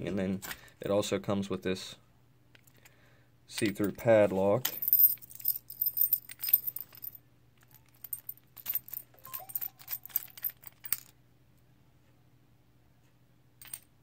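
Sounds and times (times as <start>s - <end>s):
keys jingling against padlock: 4.8s - 11.1s.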